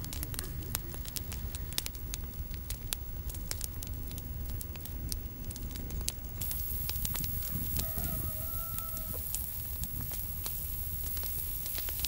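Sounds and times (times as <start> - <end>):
wood fire crackling and popping: 0.0 - 12.0
high hiss: 6.4 - 12.0.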